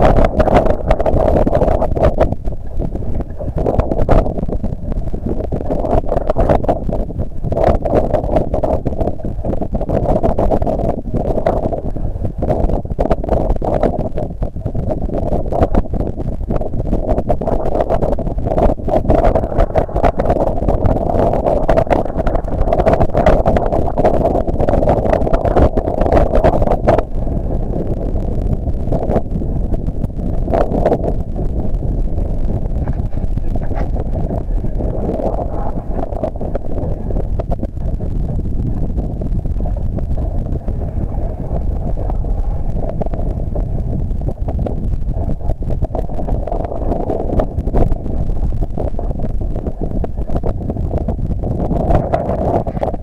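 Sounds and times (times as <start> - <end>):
choppy water: 0.0 - 53.0
wind: 24.6 - 53.0.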